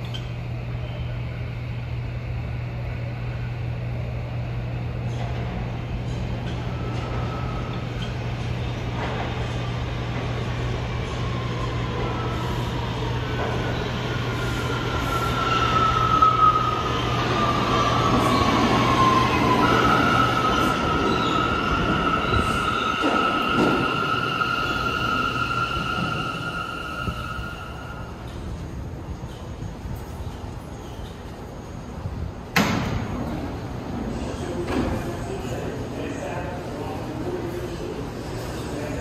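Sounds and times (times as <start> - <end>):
subway train whine: 0.0 - 39.0
high-pitched train squeal: 11.6 - 28.3.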